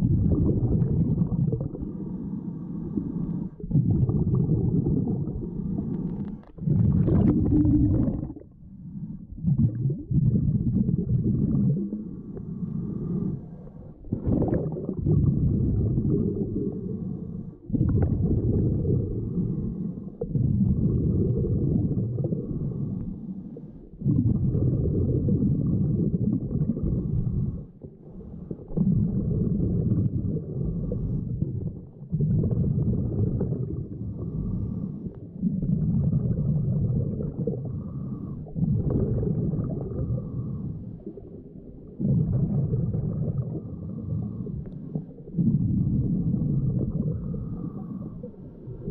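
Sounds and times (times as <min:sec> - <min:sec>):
underwater regulator bubbles: 0:00.0 - 0:48.9.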